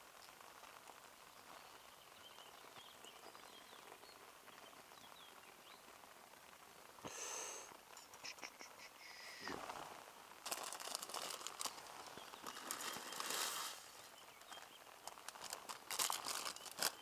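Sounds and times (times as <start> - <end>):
packet crinkling: 10.4 - 17.0.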